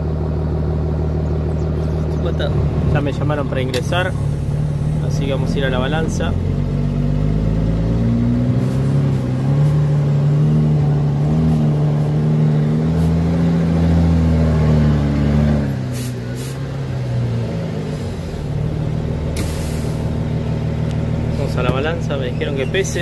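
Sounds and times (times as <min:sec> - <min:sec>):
truck diesel engine: 0:00.0 - 0:23.0
short air hisses: 0:15.9 - 0:16.7, 0:19.3 - 0:20.2.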